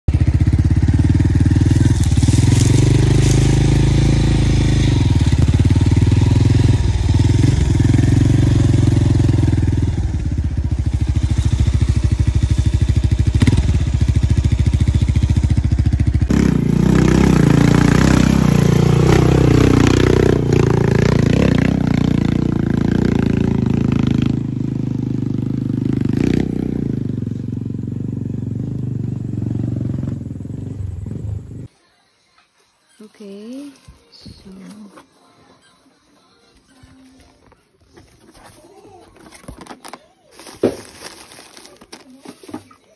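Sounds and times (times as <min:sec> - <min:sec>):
motorcycle engine running: 0:00.1 - 0:31.7.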